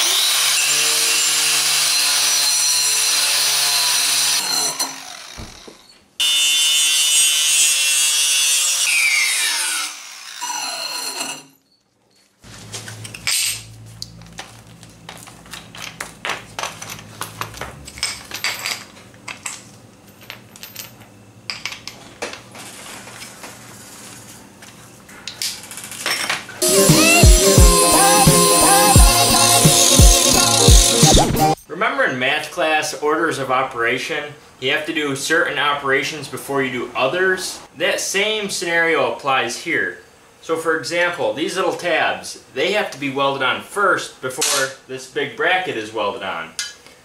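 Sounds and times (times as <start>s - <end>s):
angle grinder wire brushing metal: 26.6s - 31.6s.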